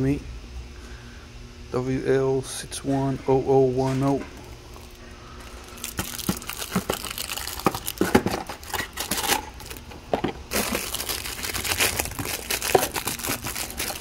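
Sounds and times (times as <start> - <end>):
plastic bag crinkling: 4.7 - 9.9, 10.5 - 14.0.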